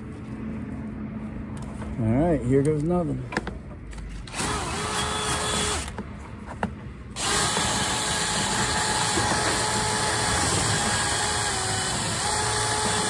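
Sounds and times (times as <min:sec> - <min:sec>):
power drill spinning brush in duct: 0:07.2 - 0:13.0.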